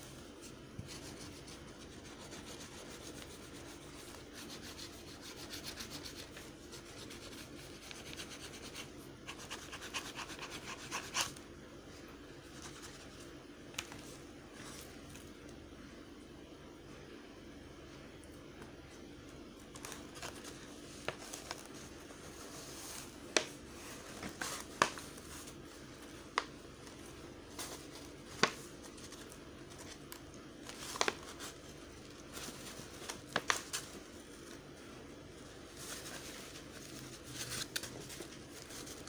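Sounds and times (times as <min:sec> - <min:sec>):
faint steady hum: 0:00.0 - 0:39.0
stiff paper clicking and crackling: 0:26.3 - 0:34.6, 0:35.8 - 0:39.0.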